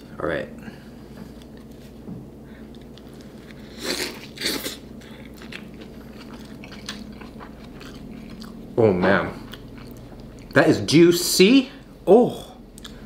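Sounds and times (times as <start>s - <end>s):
person biting a burger: 2.7s - 8.6s
chewing clicks: 12.7s - 13.0s.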